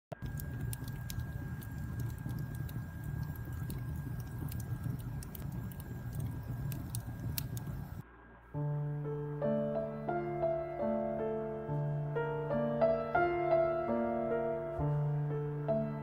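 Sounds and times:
campfire crackling: 0.1 - 8.0.

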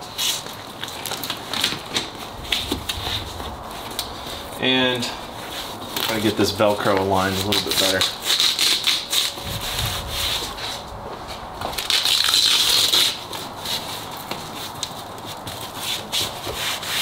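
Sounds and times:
velcro pulled apart: 7.3 - 10.8, 11.8 - 14.0
stiff fabric rustling: 9.1 - 16.4.

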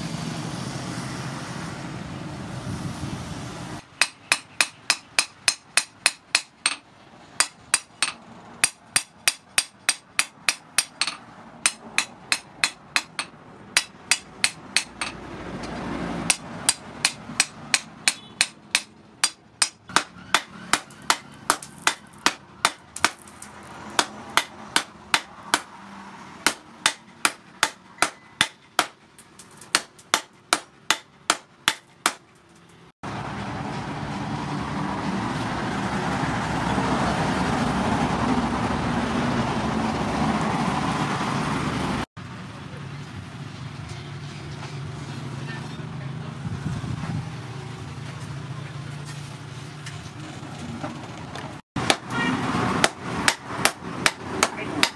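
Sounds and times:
hammer striking hot steel: 3.9 - 6.8, 7.4 - 25.7, 26.4 - 32.2, 52.8 - 54.9.

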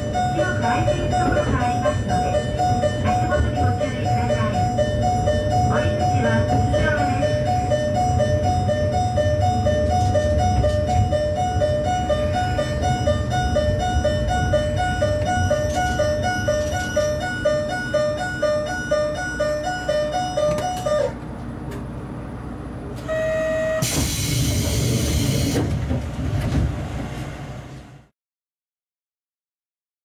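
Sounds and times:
diesel railcar rumble: 0.0 - 28.1
short steady electronic tone: 23.0 - 25.6.

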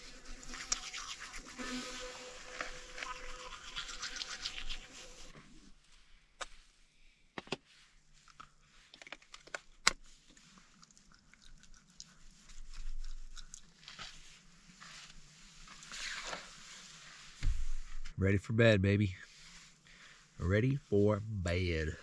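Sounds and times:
teeth scrubbing: 0.3 - 5.2, 10.3 - 14.0
teeth cleaning mouth clicks: 10.8 - 13.8.

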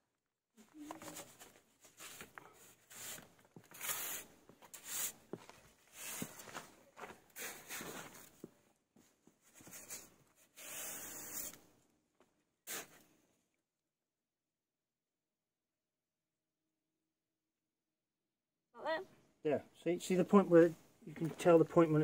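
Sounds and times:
trowel scraping mortar: 1.9 - 6.7, 7.3 - 8.4, 9.6 - 11.7.

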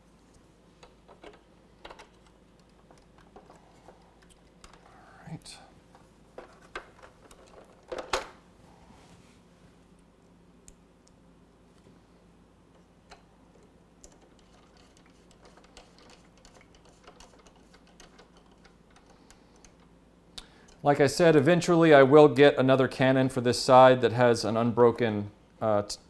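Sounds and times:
plastic toy parts handled: 6.4 - 8.3.

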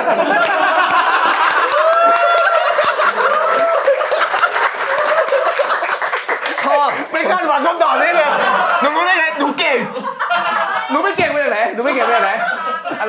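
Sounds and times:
audience laughing loudly: 0.0 - 13.0
scattered clapping: 0.4 - 7.6.

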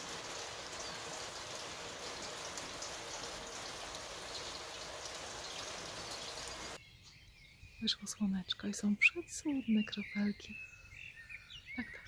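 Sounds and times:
rain pattering on a metal roof: 0.0 - 6.8.

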